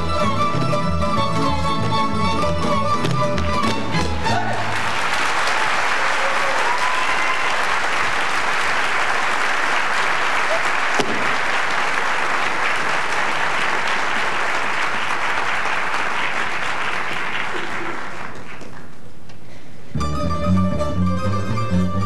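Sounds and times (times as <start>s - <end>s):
plucked string ensemble playing: 0.0s - 4.8s, 20.0s - 22.0s
audience applauding: 4.3s - 19.0s.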